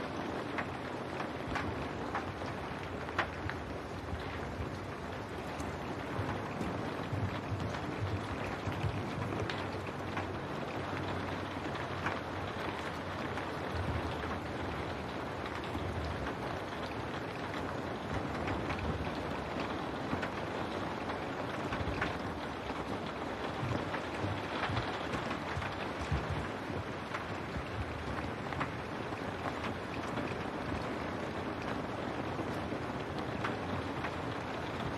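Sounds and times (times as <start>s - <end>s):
rain on window glass: 0.0s - 34.9s.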